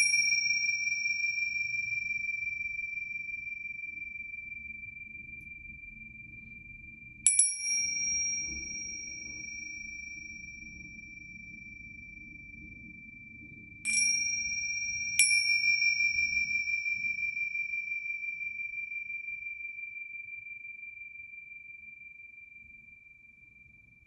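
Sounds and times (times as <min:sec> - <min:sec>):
finger cymbals ringing: 0:00.0 - 0:04.2, 0:07.3 - 0:13.0, 0:13.8 - 0:20.2.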